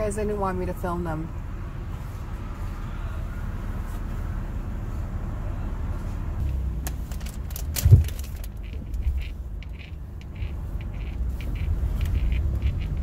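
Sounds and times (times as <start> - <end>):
car engine idling: 1.5 - 13.0
light rustling: 6.4 - 13.0
loud thump: 7.8 - 8.2.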